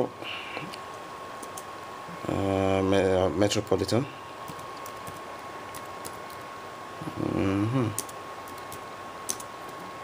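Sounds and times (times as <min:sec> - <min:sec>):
murmured vocal sound: 0:07.0 - 0:08.0.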